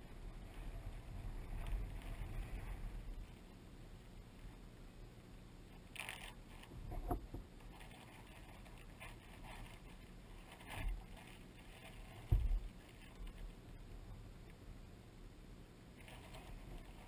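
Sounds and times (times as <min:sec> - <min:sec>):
small waves slapping a hull: 0:09.0 - 0:13.5
dull thumps against hull: 0:12.2 - 0:12.7.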